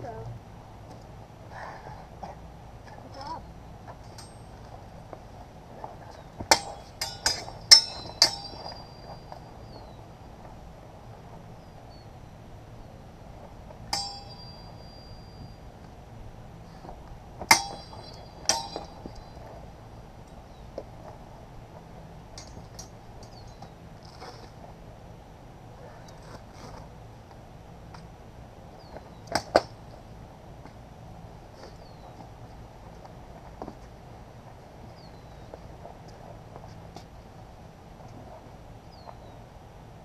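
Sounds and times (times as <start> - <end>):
steel swords clashing: 4.1 - 4.6, 6.5 - 9.4, 13.9 - 15.2, 17.5 - 19.4.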